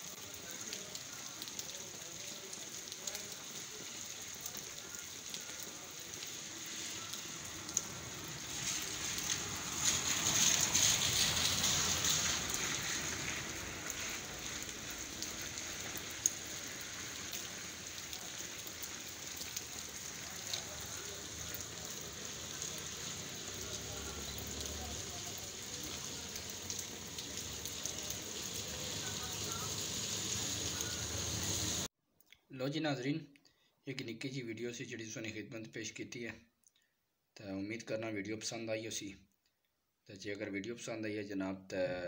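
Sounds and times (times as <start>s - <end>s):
rain pattering on a wet street: 0.0s - 31.9s.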